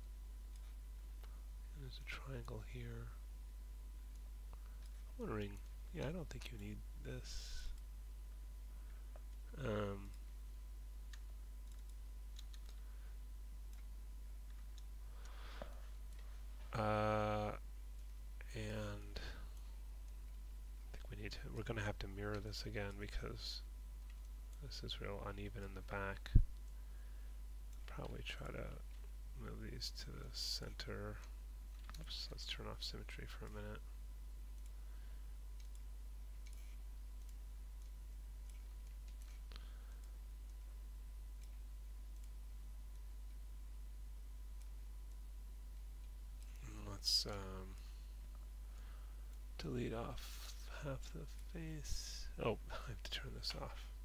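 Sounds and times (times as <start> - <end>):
low electrical hum: 0.0 - 54.0
faint computer mouse clicks: 35.6 - 40.6.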